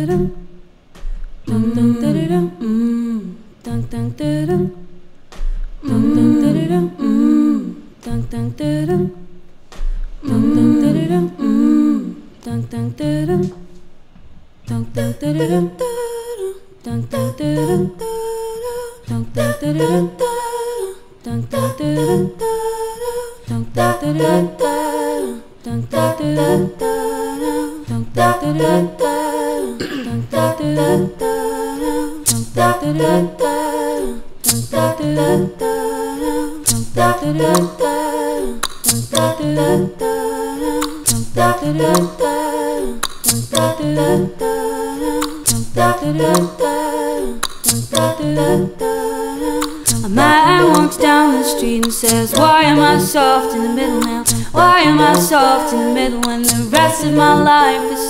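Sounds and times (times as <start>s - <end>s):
woman singing layered vocal loop: 0.0s - 13.9s, 14.6s - 58.0s.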